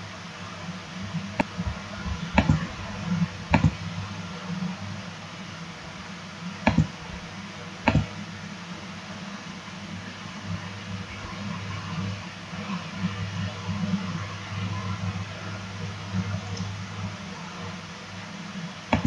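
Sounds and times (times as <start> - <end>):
low steady hum: 0.0 - 19.0
computer mouse clicking: 2.4 - 2.6, 3.5 - 3.8, 6.7 - 6.9, 7.9 - 8.1.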